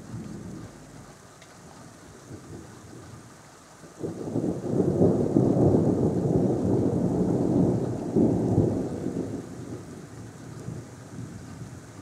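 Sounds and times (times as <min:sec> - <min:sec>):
thunder rumbling: 0:00.0 - 0:01.2, 0:04.0 - 0:11.8.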